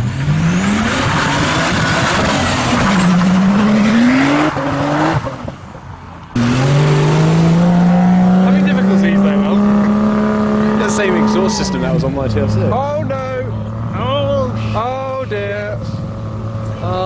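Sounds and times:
car engine revving: 0.0s - 17.0s
second car engine pulling away: 6.3s - 12.7s.

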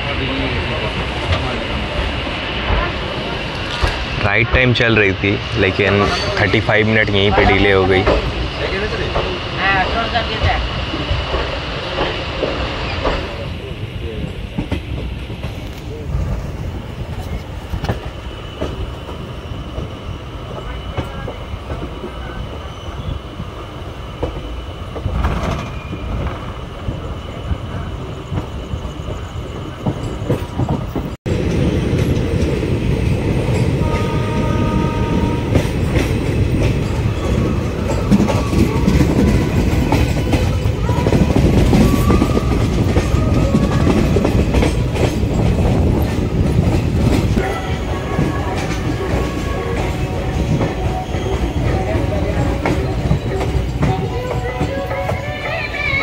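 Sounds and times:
train coaches rumbling: 0.0s - 56.0s
wheels clacking over rail joints: 29.6s - 56.0s.

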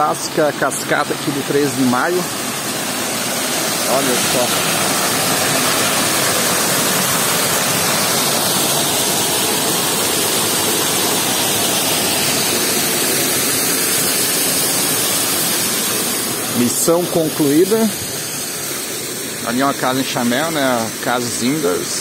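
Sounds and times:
waterfall splashing onto rocks: 0.0s - 22.0s.

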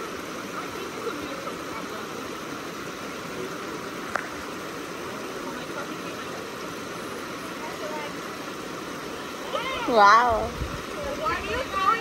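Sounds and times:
creek water running over rocks: 0.0s - 12.0s.

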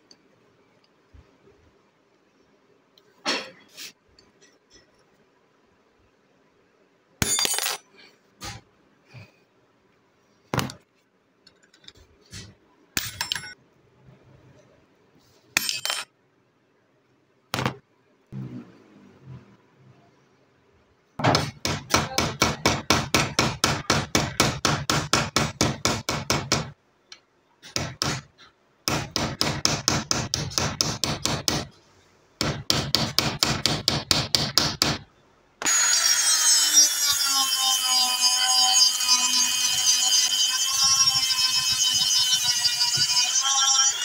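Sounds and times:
hammer strikes on metal rivets: 21.2s - 26.8s, 27.6s - 31.7s, 32.4s - 35.8s
rotary tool high whine: 35.6s - 44.0s.

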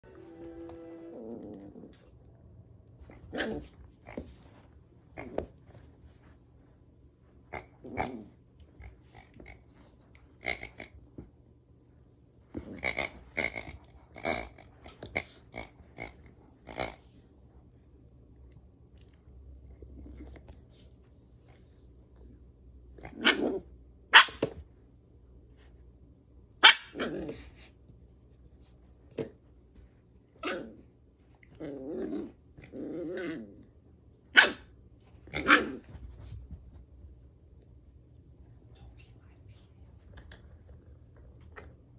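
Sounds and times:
dog growling: 1.0s - 2.1s, 7.6s - 8.4s, 30.4s - 30.8s, 31.4s - 33.7s
dog barking: 24.1s - 24.4s, 26.6s - 27.0s, 34.3s - 34.7s.

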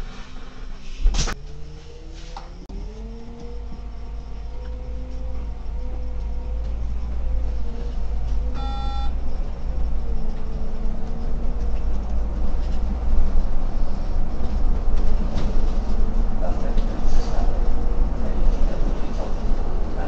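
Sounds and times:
bus engine and road rumble: 0.0s - 20.0s
short electronic beep: 8.6s - 9.2s.

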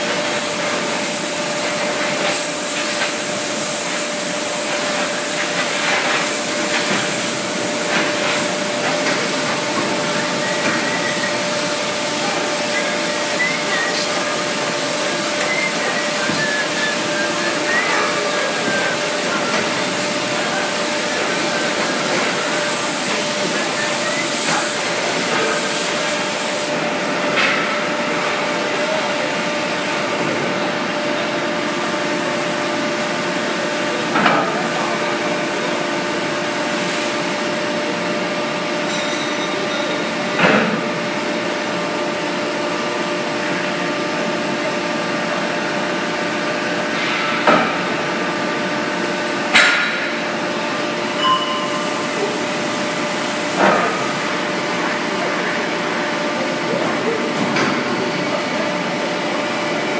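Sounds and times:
mechanical hum of machinery: 0.0s - 59.9s.

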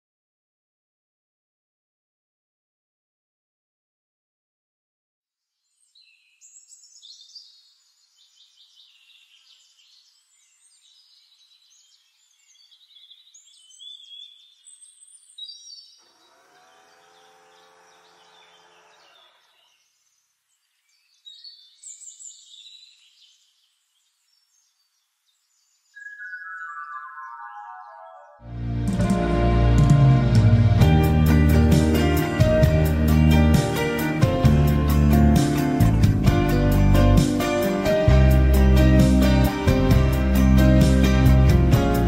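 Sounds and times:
birds chirping: 5.8s - 29.1s.

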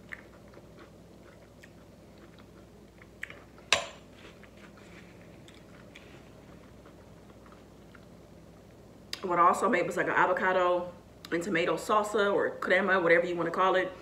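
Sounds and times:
soft chewing: 0.0s - 9.2s.

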